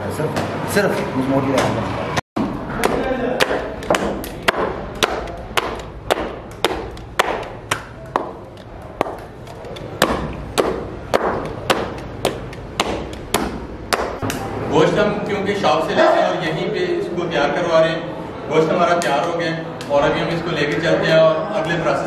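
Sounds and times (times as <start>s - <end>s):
wooden mallet pounding meat: 2.4s - 14.4s.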